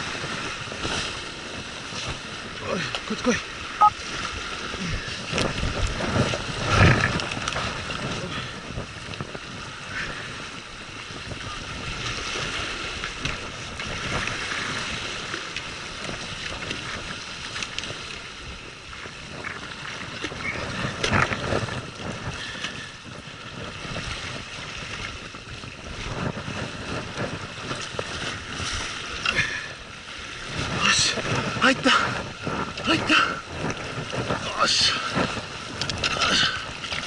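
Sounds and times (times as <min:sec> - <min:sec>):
sea waves washing against rocks: 0:00.0 - 0:37.0
wind buffeting microphone: 0:00.0 - 0:37.0.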